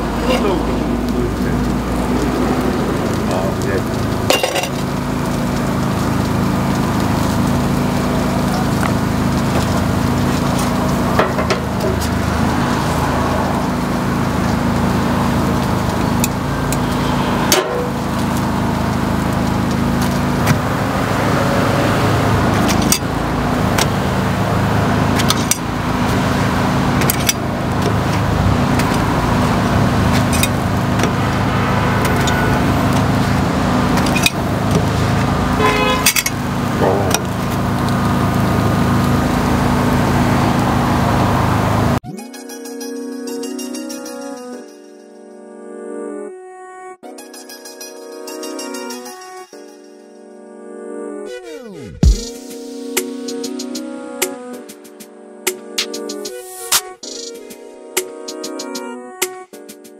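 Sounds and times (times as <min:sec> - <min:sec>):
street traffic with engine hum: 0:00.0 - 0:42.1, 0:51.8 - 0:58.9
music: 0:42.0 - 0:59.9.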